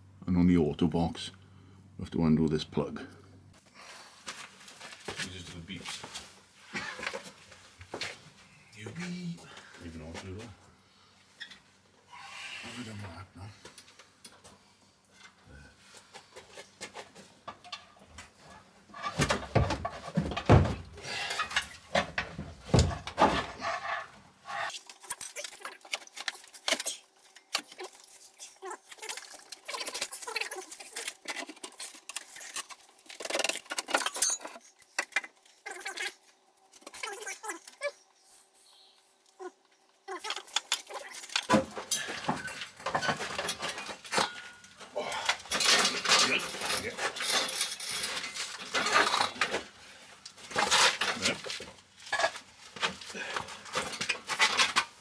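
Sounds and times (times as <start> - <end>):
metal tools clinking: 29.1 - 35.2, 40.2 - 49.6.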